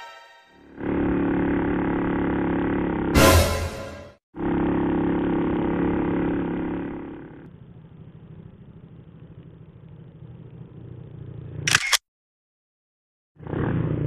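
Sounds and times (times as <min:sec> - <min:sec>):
faint low engine rumble: 0:06.8 - 0:11.7.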